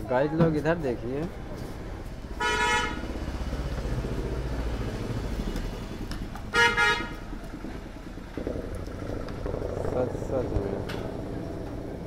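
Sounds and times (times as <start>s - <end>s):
vehicle engine rumble: 0.0s - 12.0s
vehicle horn toots: 2.4s - 3.0s, 6.5s - 7.2s.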